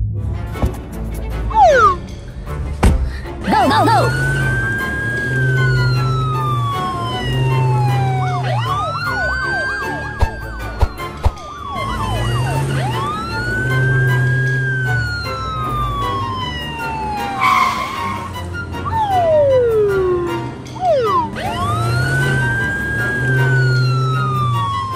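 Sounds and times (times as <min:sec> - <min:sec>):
background music with bass line: 0:00.0 - 0:17.4
police siren wailing: 0:01.5 - 0:02.1, 0:03.6 - 0:24.9.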